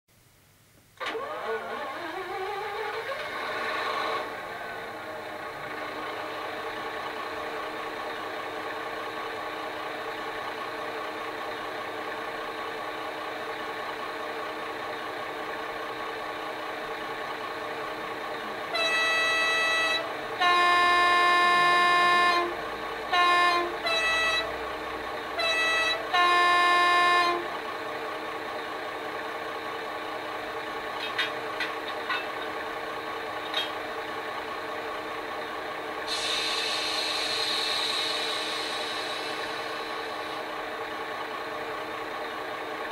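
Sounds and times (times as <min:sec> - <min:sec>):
diesel locomotive idling: 0:01.0 - 0:42.9
two-tone train horn: 0:18.7 - 0:24.5, 0:25.3 - 0:27.5
air brake hiss: 0:36.0 - 0:40.5.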